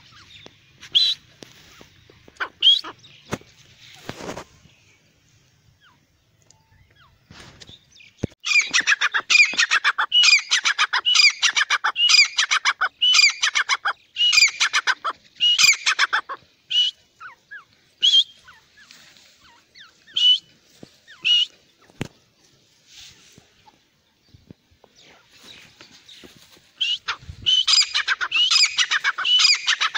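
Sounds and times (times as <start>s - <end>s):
francolin calling: 8.4s - 20.5s, 26.8s - 29.9s.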